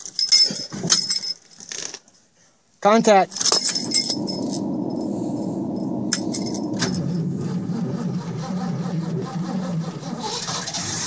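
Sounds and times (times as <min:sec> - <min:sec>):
starter cranking cold engine: 0:03.6 - 0:11.0.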